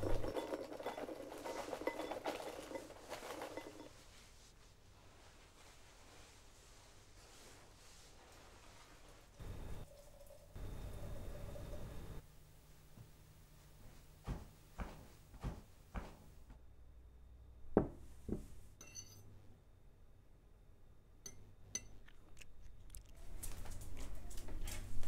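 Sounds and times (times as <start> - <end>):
spoon clinking against ceramic bowl: 18.8 - 19.3, 21.2 - 22.2.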